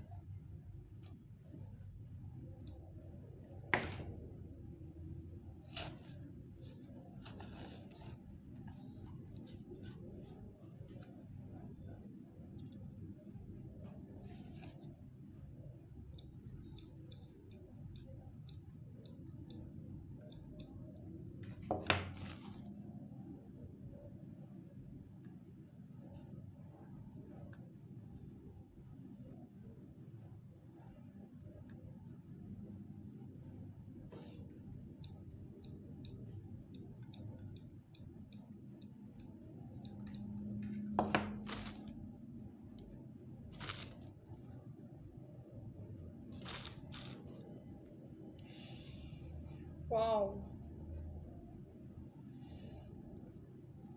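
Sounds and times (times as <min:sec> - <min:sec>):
hands handling artificial flowers: 0:21.5 - 0:22.8, 0:41.0 - 0:42.1, 0:43.5 - 0:44.6, 0:46.3 - 0:47.6
plastic bag rustling: 0:41.4 - 0:41.9, 0:43.5 - 0:44.1, 0:46.4 - 0:47.3.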